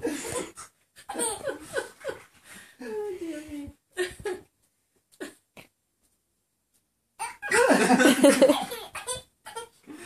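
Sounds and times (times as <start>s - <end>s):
people laughing heartily: 7.5s - 8.6s.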